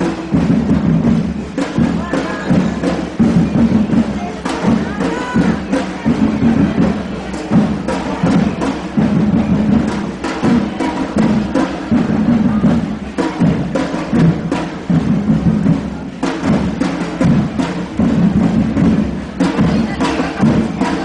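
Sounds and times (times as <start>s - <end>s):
marching drums and percussion: 0.0s - 21.0s.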